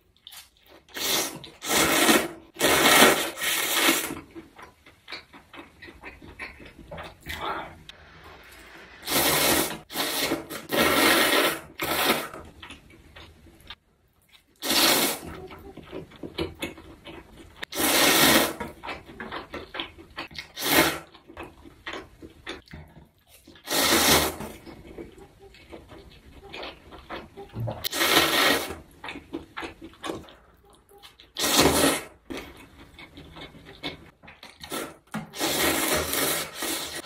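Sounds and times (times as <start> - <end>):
person slurping noodles: 0.9 - 4.2, 7.1 - 12.4, 14.6 - 15.4, 17.7 - 18.6, 23.6 - 24.6, 27.6 - 28.8, 34.6 - 37.0
wet chewing: 3.4 - 7.9, 11.8 - 36.9.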